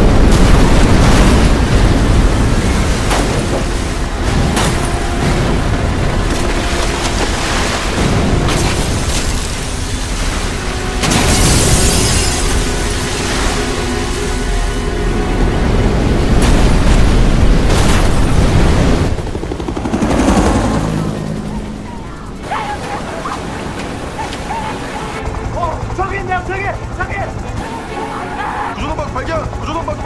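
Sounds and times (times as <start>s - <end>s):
rushing crashing water: 0.0s - 19.6s, 22.4s - 25.2s.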